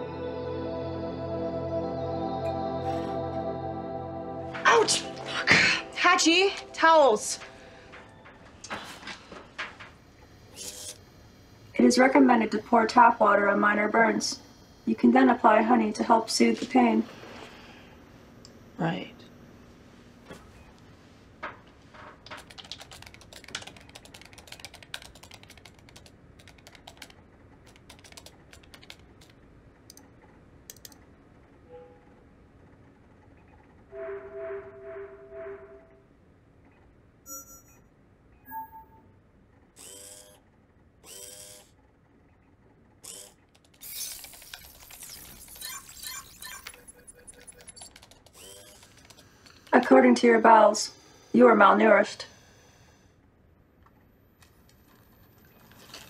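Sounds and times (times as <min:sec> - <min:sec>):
servo whir: 0:10.5 - 0:11.0, 0:39.8 - 0:40.4, 0:41.0 - 0:41.7, 0:43.0 - 0:49.7
typing on computer keyboard: 0:22.2 - 0:30.0, 0:30.7 - 0:31.0, 0:43.5 - 0:49.7
faint electronic beeps: 0:37.3 - 0:39.2
clicking ratcheting mechanical noise: 0:43.0 - 0:49.8.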